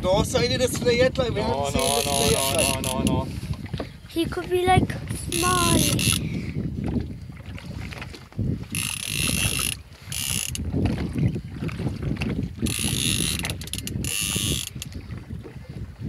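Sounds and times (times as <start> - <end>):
fishing reel ratchet clicking: 1.8 - 3.2, 5.3 - 6.3, 8.7 - 10.6, 12.6 - 14.9.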